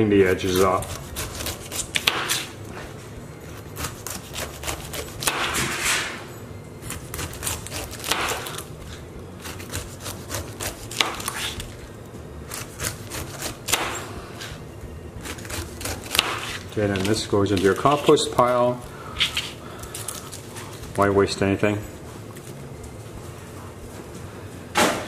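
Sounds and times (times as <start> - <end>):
knife slicing pineapple skin: 0.2 - 2.6, 3.5 - 5.8, 6.9 - 11.8, 12.5 - 14.1, 15.2 - 18.4.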